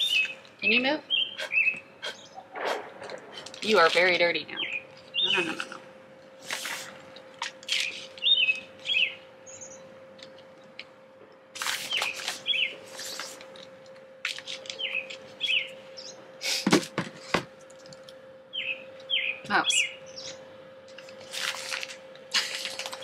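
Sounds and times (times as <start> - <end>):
songbird chirping: 0.0 - 2.5, 4.5 - 5.6, 7.7 - 10.0, 14.7 - 16.2, 18.5 - 20.5
faint steady hum: 0.0 - 23.0
rustling of soil and plastic pots: 20.9 - 23.0.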